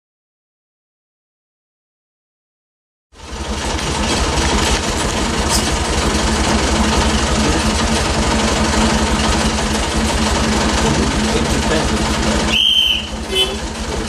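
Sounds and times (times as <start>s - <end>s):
locomotive engine idling: 3.2s - 14.0s.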